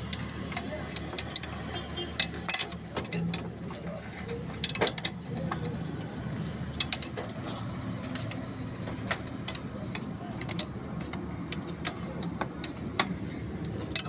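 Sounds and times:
wrench clicking on metal fittings: 0.0 - 7.4.

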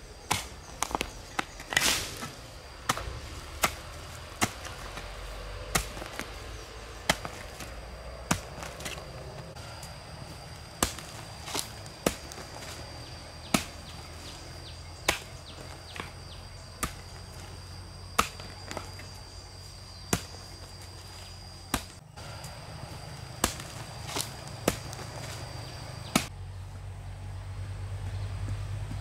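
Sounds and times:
steady high-pitched whine: 0.0 - 28.2
blade chopping into wood: 0.2 - 6.4, 10.8 - 12.8, 23.4 - 25.4.

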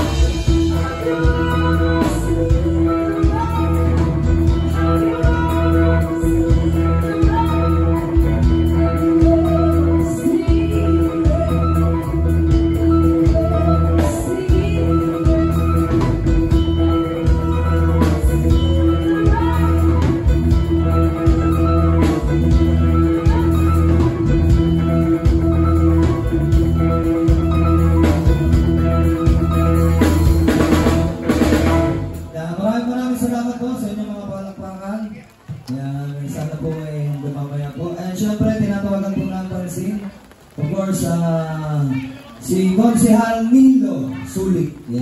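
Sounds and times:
live rock band playing: 0.0 - 35.7.

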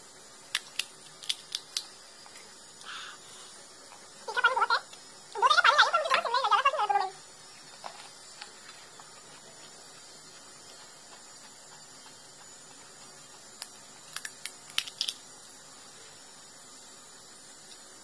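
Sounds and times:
faint steady hiss: 0.0 - 18.0
crisp shell cracking: 0.5 - 1.9, 13.6 - 15.2.

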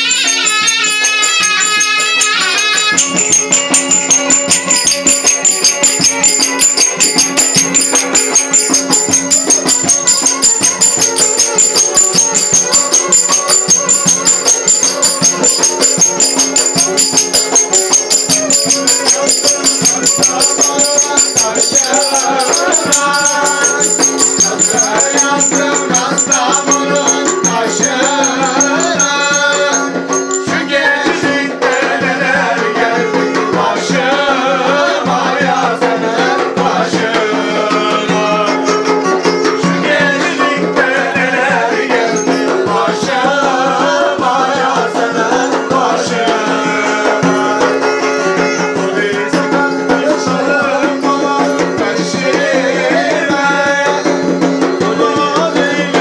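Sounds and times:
bowed string melody: 0.0 - 30.9
hand clappers clattering: 0.0 - 32.2
zurna melody: 0.0 - 56.0.

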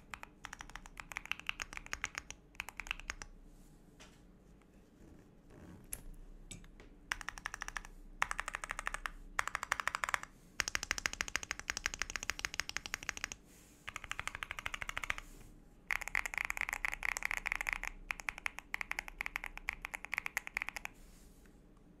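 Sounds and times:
mechanical keyboard typing: 0.0 - 3.3, 7.1 - 15.3, 15.9 - 21.0.

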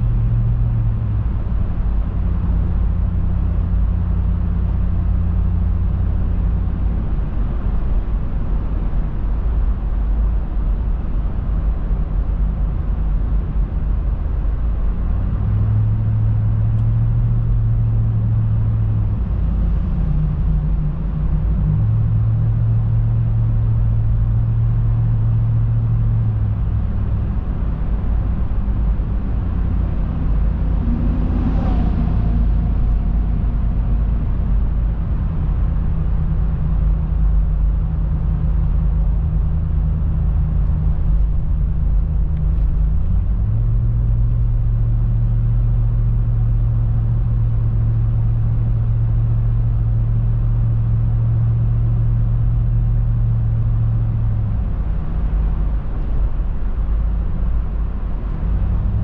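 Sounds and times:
car engine hum: 0.0 - 59.0
road and tyre rumble: 0.0 - 59.0
vehicle passing: 29.4 - 35.9.

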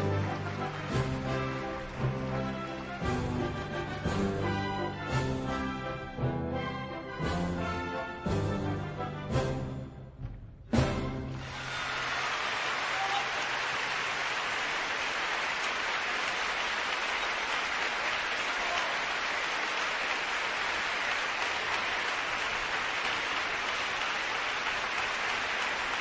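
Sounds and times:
audience applauding: 0.0 - 5.1, 11.3 - 26.0.

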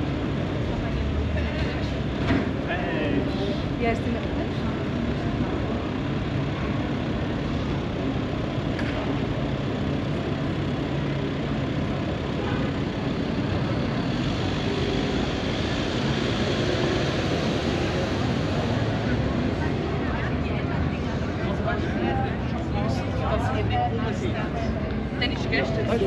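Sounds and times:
traffic and trams hum: 0.0 - 26.0.

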